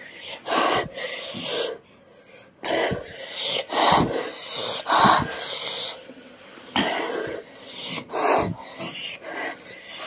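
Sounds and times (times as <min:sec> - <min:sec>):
person breathing hard: 0:00.0 - 0:10.0.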